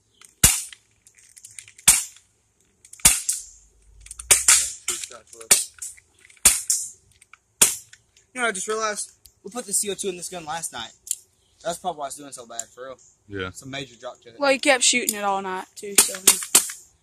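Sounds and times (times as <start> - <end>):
air pistol pops: 0.2 - 0.8, 1.8 - 2.2, 2.9 - 3.5, 4.1 - 6.9, 7.6 - 8.0, 16.0 - 16.8.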